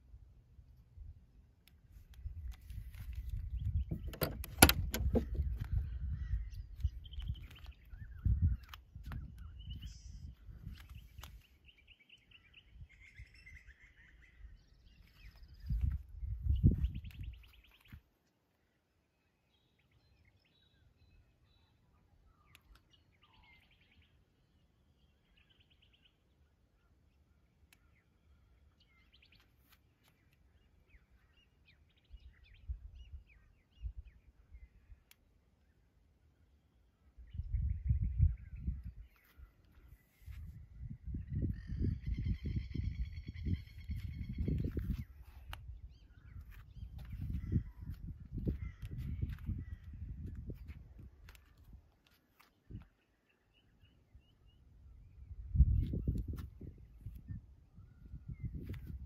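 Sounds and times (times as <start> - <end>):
birds chirping and calling: 2.2 - 18.0, 37.3 - 51.7.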